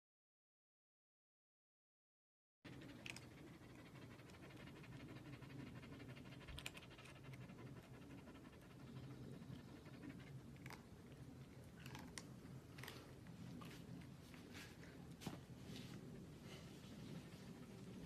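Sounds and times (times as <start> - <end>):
dog panting: 2.7 - 11.1.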